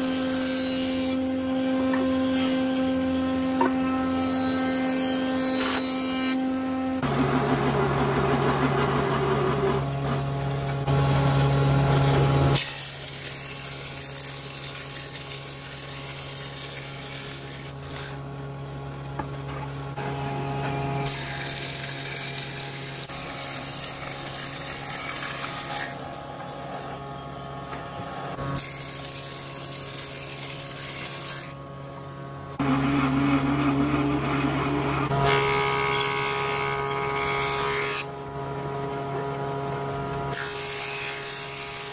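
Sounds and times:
planer motor hum: 0:00.0 - 0:12.6, 0:31.0 - 0:41.9.

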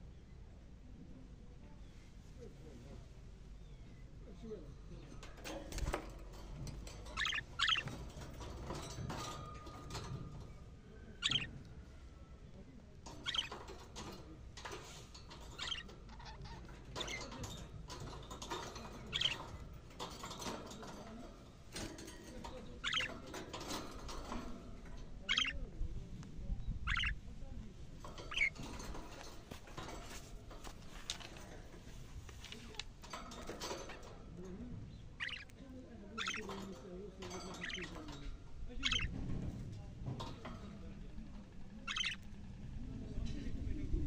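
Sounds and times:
budgerigars chirping: 0:07.1 - 0:08.0, 0:11.2 - 0:11.5, 0:13.1 - 0:13.7, 0:15.5 - 0:16.4, 0:19.0 - 0:19.5, 0:22.7 - 0:23.3, 0:25.2 - 0:25.6, 0:26.9 - 0:27.2, 0:28.2 - 0:28.6, 0:35.0 - 0:35.6, 0:36.2 - 0:36.7, 0:37.4 - 0:38.1, 0:38.8 - 0:39.1, 0:41.8 - 0:42.2.

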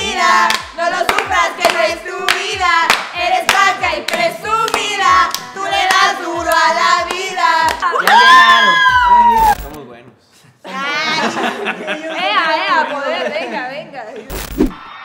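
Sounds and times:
group of people singing: 0:00.0 - 0:08.0
people clapping: 0:00.0 - 0:09.8.

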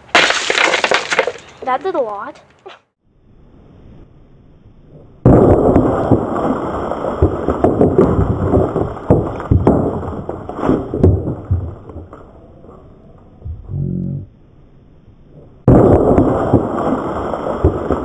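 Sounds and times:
sharp cracks and pops: 0:00.0 - 0:02.8, 0:05.2 - 0:12.8, 0:15.4 - 0:18.0
explosive blast: 0:05.2 - 0:12.1, 0:15.6 - 0:18.0.

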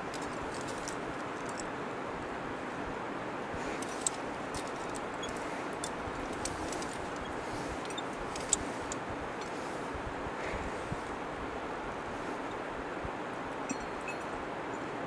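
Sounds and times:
metal climbing gear clinking: 0:00.0 - 0:01.8, 0:03.6 - 0:09.9, 0:13.7 - 0:14.9.

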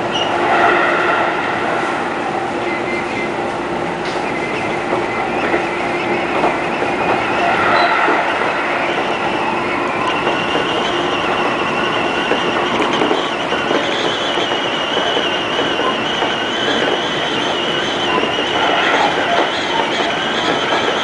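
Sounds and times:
train wheels rolling on rails: 0:00.0 - 0:21.0
high whine: 0:06.0 - 0:13.4.

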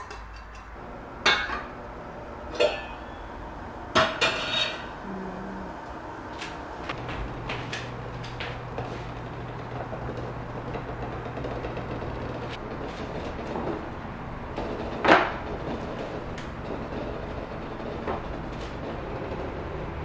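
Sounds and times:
low hum: 0:00.0 - 0:20.0
pot of eggs boiling: 0:07.0 - 0:20.0.

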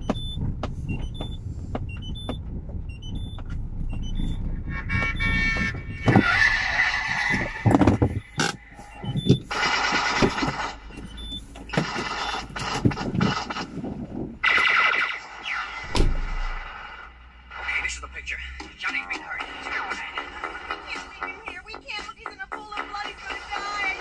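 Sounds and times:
high electronic beeps: 0:00.0 - 0:13.5
car engine rumbling: 0:00.0 - 0:14.5, 0:15.8 - 0:20.7
harsh alarm-like sound: 0:03.9 - 0:13.6.

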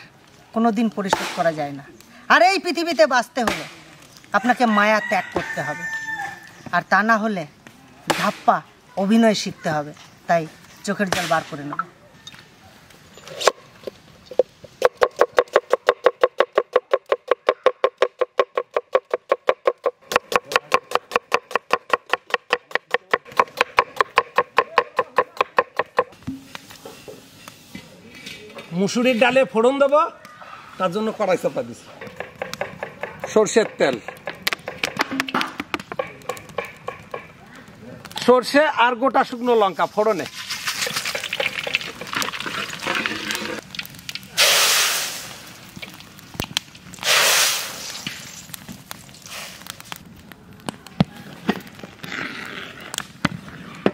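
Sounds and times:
knife chopping on wooden board: 0:14.8 - 0:26.1
seeds crackling in hot oil: 0:35.8 - 0:52.1
loud sizzling hiss: 0:39.3 - 0:50.4.

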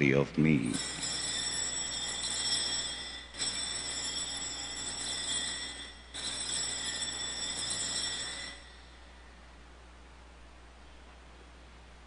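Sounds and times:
small bells jingling: 0:00.6 - 0:09.3.

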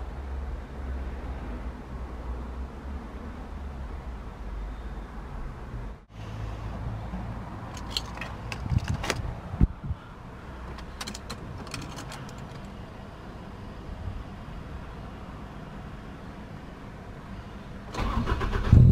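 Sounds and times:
car keys jangling: 0:07.7 - 0:09.3, 0:10.6 - 0:12.8.

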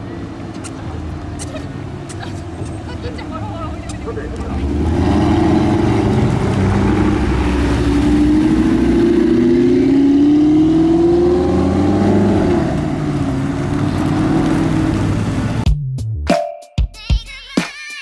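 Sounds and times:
car engines accelerating: 0:00.0 - 0:15.7
deep engine hum: 0:00.0 - 0:16.2.

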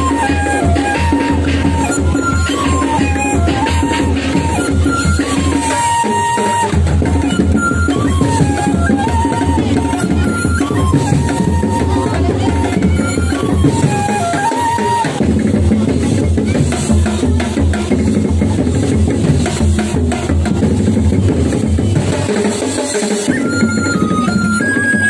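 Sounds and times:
high wavering melody: 0:00.0 - 0:15.4, 0:23.3 - 0:25.0
drums and percussion beat: 0:00.0 - 0:25.0.

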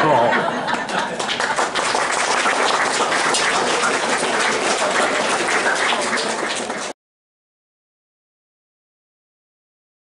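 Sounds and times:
audience applauding: 0:00.6 - 0:07.0.

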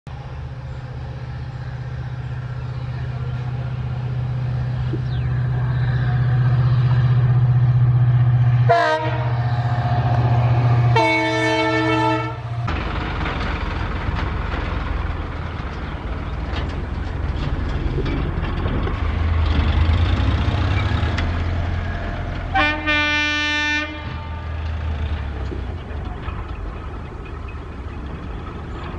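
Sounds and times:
diesel locomotive engine drone: 0:00.1 - 0:28.9
locomotive passing rumble: 0:00.1 - 0:28.9
electric locomotive horn: 0:08.6 - 0:12.6, 0:22.5 - 0:24.6
locomotive horn blasts: 0:08.7 - 0:09.4, 0:10.8 - 0:12.6, 0:22.5 - 0:24.6.

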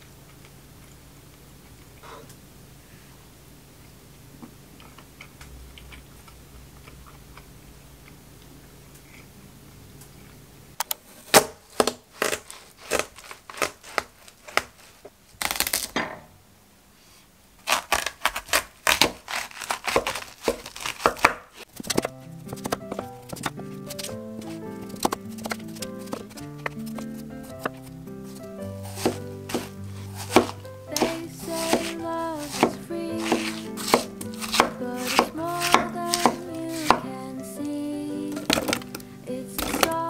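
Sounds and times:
melon splitting open: 0:11.3 - 0:16.0, 0:17.6 - 0:23.5, 0:24.4 - 0:37.0, 0:39.6 - 0:40.0
knife cutting watermelon: 0:17.7 - 0:37.1, 0:39.6 - 0:40.0
background music: 0:21.9 - 0:40.0.

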